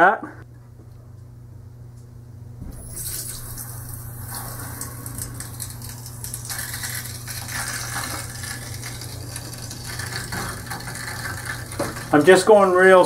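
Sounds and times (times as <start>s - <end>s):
steady low hum: 0.0s - 13.0s
water hissing through valve: 2.6s - 12.7s.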